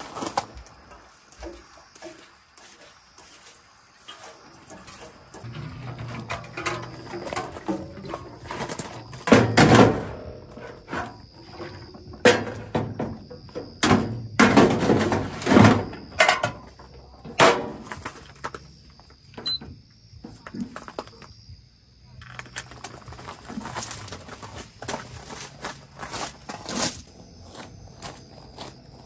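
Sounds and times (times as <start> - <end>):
knocks and clattering handling: 4.1 - 18.7.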